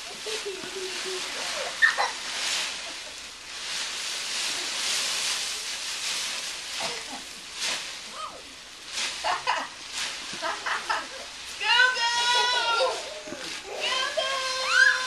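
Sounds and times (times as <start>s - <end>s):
dry leaves rustling and crunching: 0.0s - 15.0s
child vocalisations: 12.4s - 15.0s.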